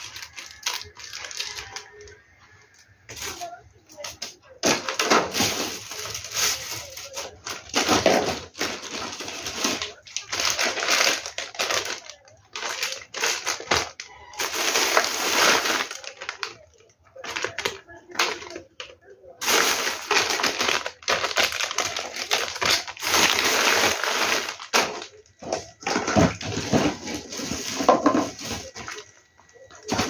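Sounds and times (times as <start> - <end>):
plastic wrappers crinkling: 0.0 - 30.0.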